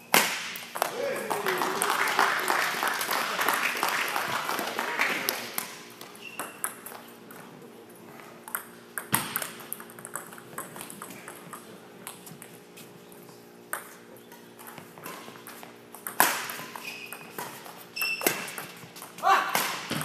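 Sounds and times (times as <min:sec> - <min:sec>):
low hum of hall: 0:00.0 - 0:20.0
rackets hitting shuttlecock: 0:00.1 - 0:01.5, 0:08.5 - 0:12.5, 0:13.7 - 0:20.0
shoes squeaking on court floor: 0:05.8 - 0:07.6, 0:12.2 - 0:20.0.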